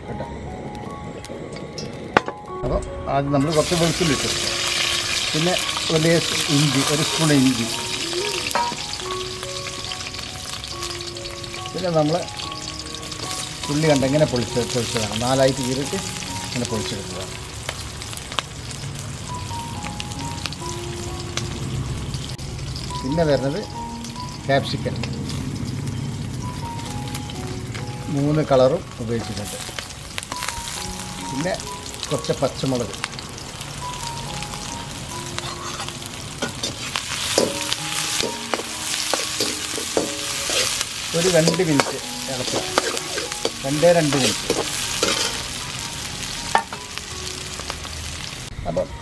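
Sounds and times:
onions sizzling in hot oil: 3.4 - 48.5
crackles and pops of frying: 3.5 - 48.5
metal spatula scraping a pan: 35.4 - 45.5.

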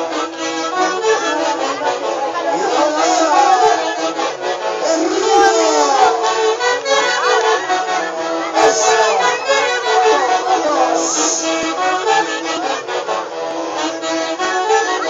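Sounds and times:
live traditional band music: 0.0 - 15.0.

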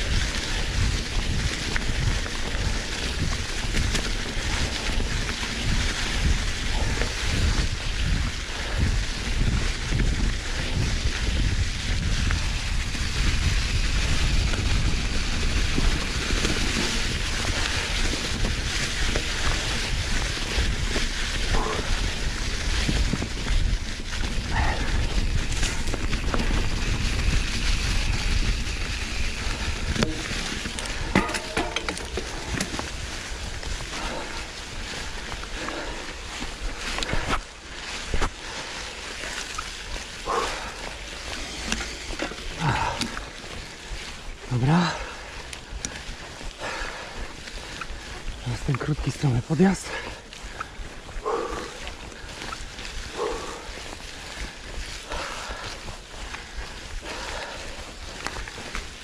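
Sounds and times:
bike rattling and knocking: 0.0 - 59.0
tyres rolling through dry leaves: 0.0 - 59.0
wind buffeting microphone: 0.0 - 59.0
heavy breathing: 21.3 - 22.8, 24.3 - 25.8, 30.8 - 39.4, 40.1 - 43.8, 44.8 - 48.5, 49.8 - 58.8.

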